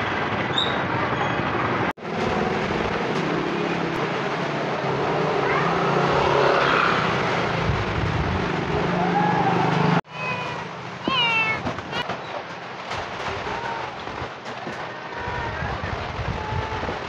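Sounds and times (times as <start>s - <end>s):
street traffic with passing vehicles: 0.0s - 17.0s.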